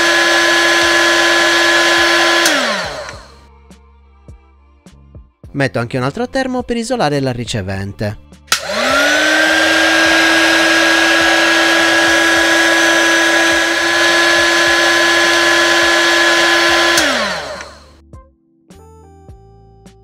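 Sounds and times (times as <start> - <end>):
heat gun fan whine: 0.0 - 3.4, 8.5 - 18.0
heat gun switch click: 1.2 - 3.3, 8.5 - 17.8
rushing hot air: 8.6 - 17.9.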